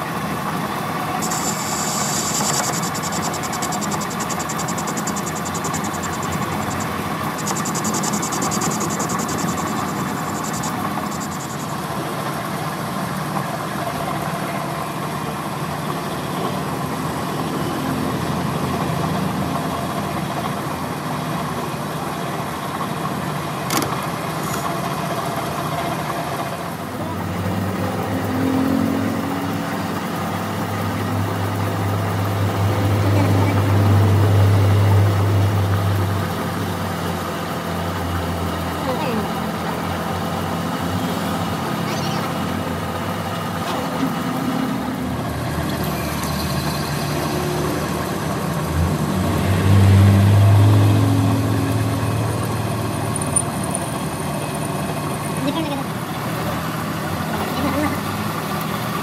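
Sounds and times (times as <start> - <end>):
metal lathe running: 0.7 - 12.0
sharp click: 1.2 - 11.7
drill drilling into metal: 1.2 - 11.8.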